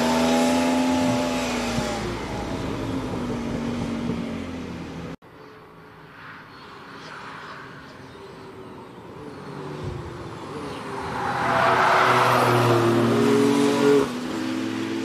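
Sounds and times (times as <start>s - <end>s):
car accelerating past: 9.6s - 15.0s.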